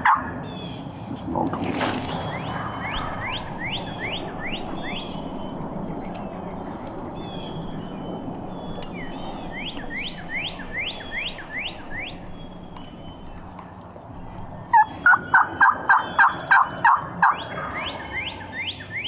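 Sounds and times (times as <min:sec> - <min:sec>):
songbird whistling: 0:02.3 - 0:19.0
steady rushing background: 0:02.4 - 0:16.1.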